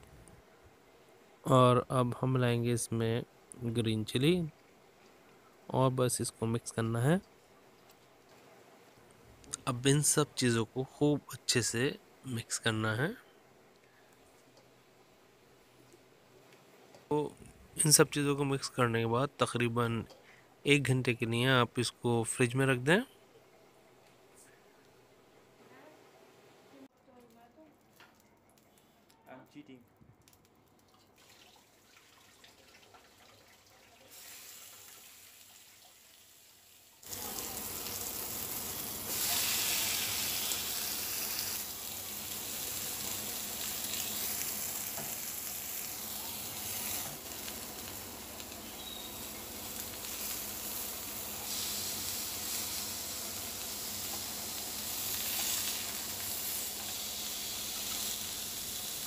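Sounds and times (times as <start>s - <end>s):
meat patties sizzling on grill: 34.1s - 59.0s.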